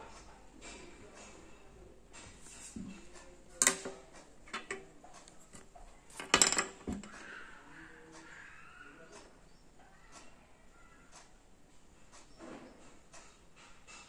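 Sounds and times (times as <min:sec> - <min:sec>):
drawing instruments clattering: 0:02.1 - 0:07.4.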